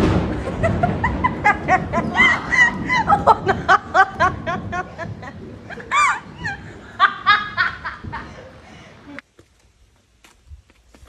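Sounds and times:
person laughing hard: 0.3s - 8.7s.

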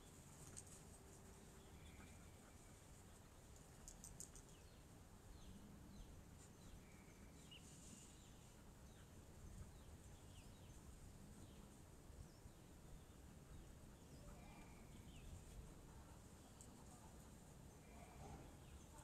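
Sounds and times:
faint background hum: 0.0s - 19.0s
faint high clicks: 0.3s - 0.8s, 3.5s - 4.7s.

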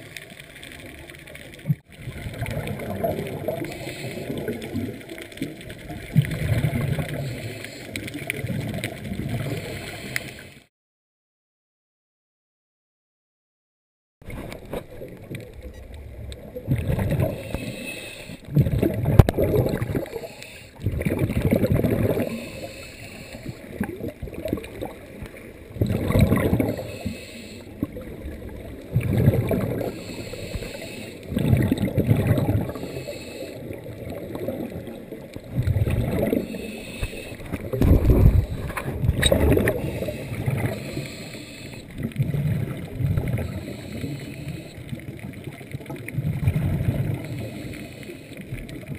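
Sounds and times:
underwater regulator bubbles: 0.0s - 10.6s, 14.2s - 48.9s
faint hiss: 22.3s - 23.8s, 29.8s - 31.3s, 39.8s - 42.0s.

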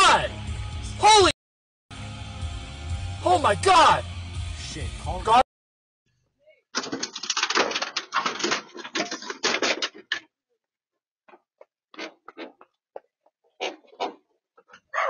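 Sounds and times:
rapid clatter of clicks: 6.8s - 10.2s.

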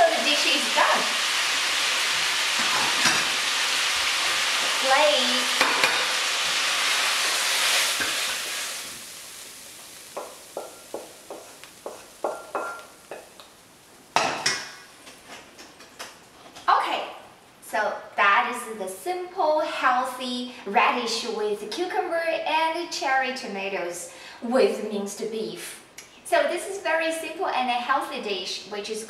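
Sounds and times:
food sizzling in a wok: 0.0s - 15.3s
wooden spatula scraping a wok: 10.6s - 12.3s.

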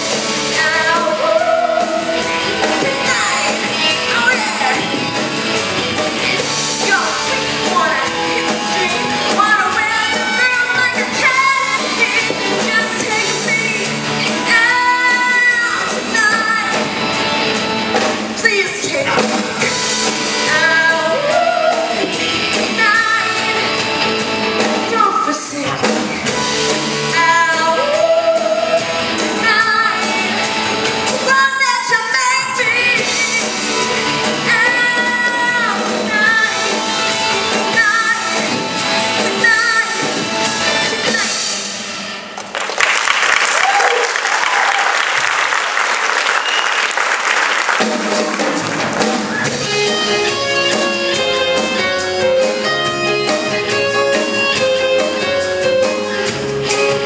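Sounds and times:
woman singing: 0.0s - 4.9s, 6.1s - 16.9s, 20.4s - 23.8s, 27.1s - 41.5s
rock band playing: 0.0s - 57.0s.

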